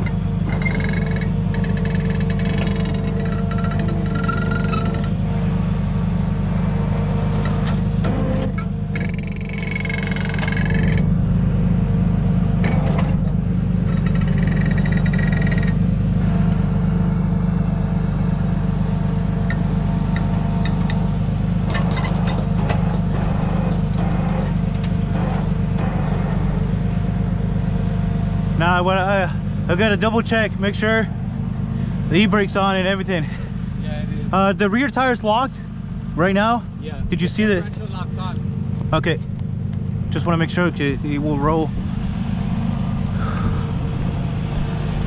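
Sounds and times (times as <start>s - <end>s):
high-pitched squeals: 0.0s - 5.3s, 7.4s - 11.2s, 12.6s - 15.8s
truck engine running: 0.0s - 45.0s.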